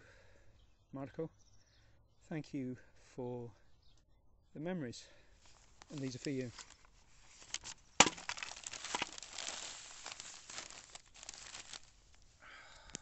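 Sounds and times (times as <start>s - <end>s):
newspaper crinkling and rustling: 5.5s - 12.4s.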